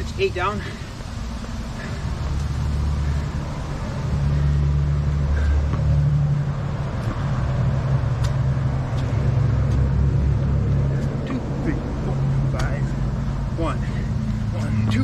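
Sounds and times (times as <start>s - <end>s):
light taps on asphalt: 8.1s - 10.0s, 12.5s - 13.0s.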